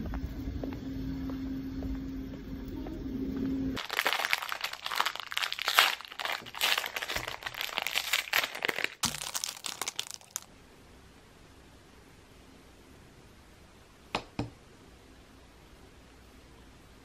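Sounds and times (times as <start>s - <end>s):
plastic bag crinkling: 3.8s - 10.5s.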